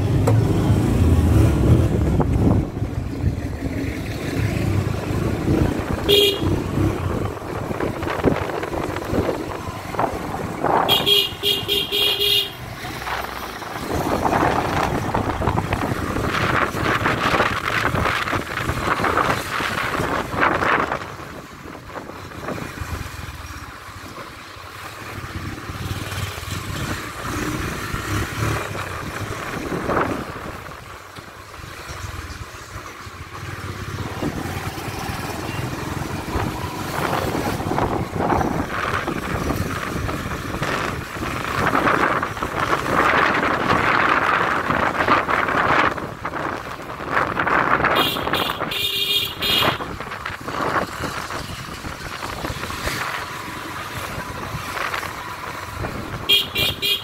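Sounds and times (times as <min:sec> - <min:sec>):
road traffic: 0:00.0 - 0:57.0
car horns honking: 0:06.0 - 0:06.7, 0:10.8 - 0:12.7, 0:47.9 - 0:49.9, 0:56.2 - 0:57.0.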